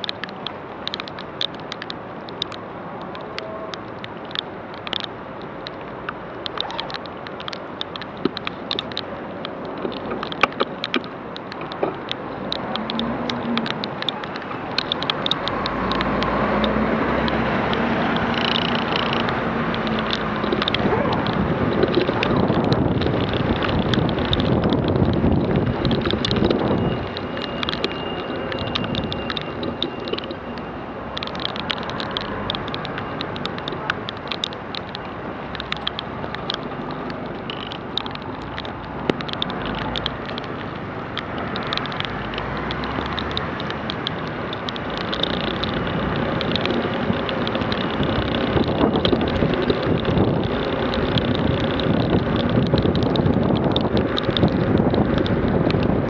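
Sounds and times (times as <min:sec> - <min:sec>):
raindrops ticking on camera: 0:00.0 - 0:56.0
tyre spray and wind rushing: 0:45.4 - 0:56.0.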